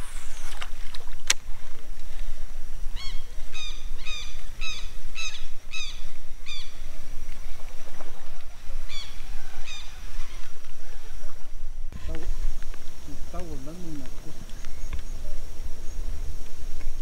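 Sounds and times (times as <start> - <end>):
bird harsh calls: 3.0 - 6.9, 8.8 - 11.4.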